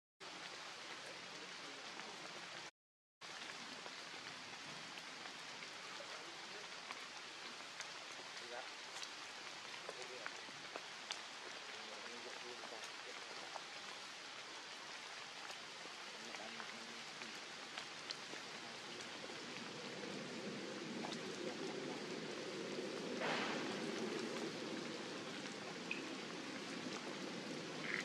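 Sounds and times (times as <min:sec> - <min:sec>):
light rain hissing: 0:00.2 - 0:28.0
drip clicks: 0:25.8 - 0:26.2.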